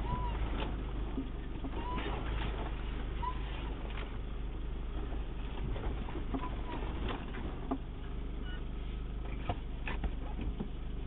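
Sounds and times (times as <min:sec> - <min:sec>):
short squeaks: 0:00.0 - 0:00.8, 0:01.7 - 0:03.8, 0:08.4 - 0:08.7
body knocks and rattles: 0:00.0 - 0:08.2, 0:09.2 - 0:11.0
off-road vehicle engine rumble: 0:00.0 - 0:11.0.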